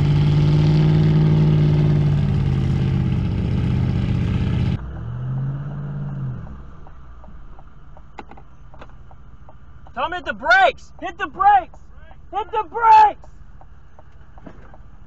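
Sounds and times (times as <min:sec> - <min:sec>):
engine droning at high revs: 0:00.0 - 0:07.6
quiet vehicle hum: 0:00.0 - 0:15.0.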